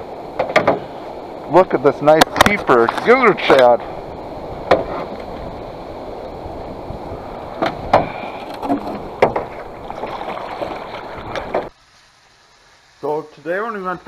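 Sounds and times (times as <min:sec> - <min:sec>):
paddle stroking through water: 0:04.6 - 0:11.7
sharp knocks: 0:07.6 - 0:09.6.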